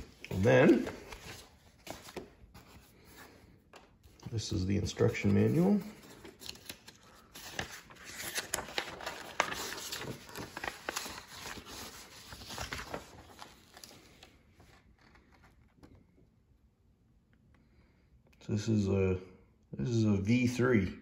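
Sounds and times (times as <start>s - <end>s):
paper sheets rustling: 0.0s - 15.9s
manual pages being turned: 0.0s - 16.2s.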